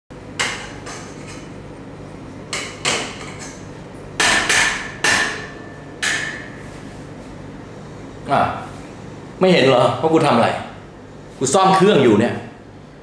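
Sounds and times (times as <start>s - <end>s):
wrench banging on metal pipe: 4.2s - 6.5s.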